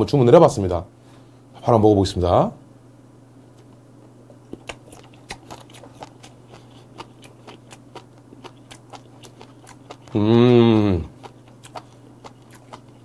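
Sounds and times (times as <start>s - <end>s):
faint low hum: 0.0s - 13.0s
chewing with crunching clicks: 4.3s - 10.2s, 11.1s - 13.0s.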